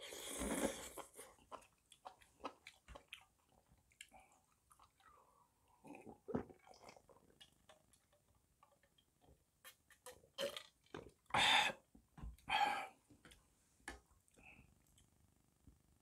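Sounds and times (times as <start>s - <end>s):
man gulping water: 4.0s - 11.8s.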